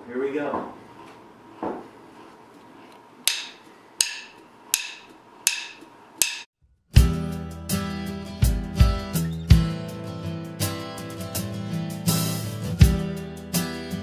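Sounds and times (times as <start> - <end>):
drumsticks clicking together: 3.3 - 6.4.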